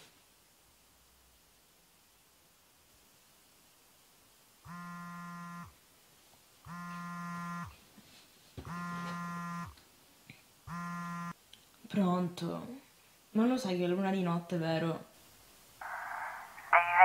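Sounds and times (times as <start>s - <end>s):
mobile phone buzzing: 4.7s - 5.8s, 6.7s - 7.8s, 8.7s - 9.8s, 10.7s - 11.4s.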